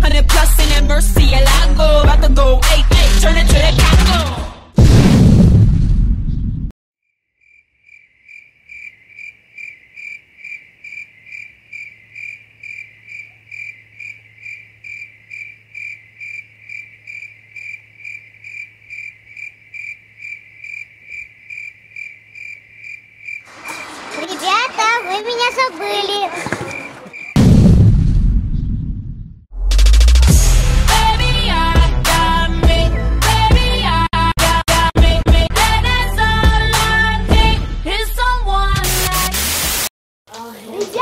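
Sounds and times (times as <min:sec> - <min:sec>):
hip hop music: 0:00.0 - 0:04.7, 0:29.7 - 0:39.9
cricket chirping: 0:07.1 - 0:24.0, 0:26.4 - 0:27.4.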